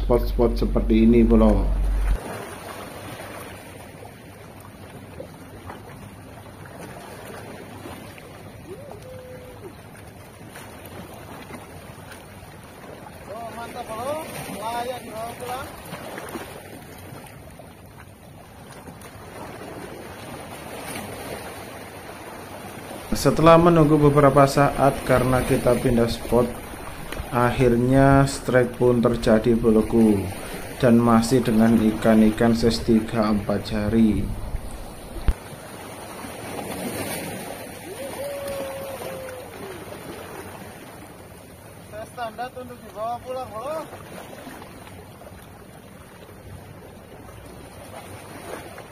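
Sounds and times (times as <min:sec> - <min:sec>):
wind on microphone: 0:00.0 - 0:02.2, 0:32.4 - 0:35.4
sea waves washing against rocks: 0:05.4 - 0:17.4, 0:18.7 - 0:45.6.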